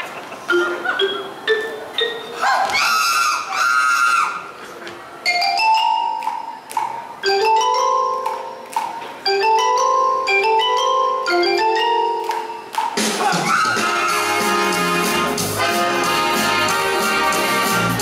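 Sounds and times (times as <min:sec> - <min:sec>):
vibraphone runs: 0:00.4 - 0:02.6, 0:05.2 - 0:13.1.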